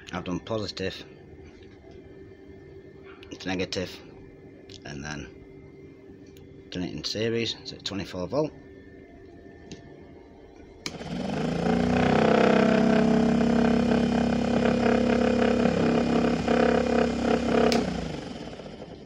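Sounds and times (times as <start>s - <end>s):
electric motor whining: 10.9s - 19.0s
switch click: 17.7s - 17.9s.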